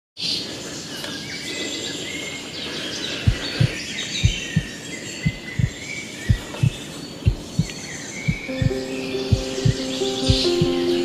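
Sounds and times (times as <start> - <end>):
birds chirping and singing: 0.2 - 11.0.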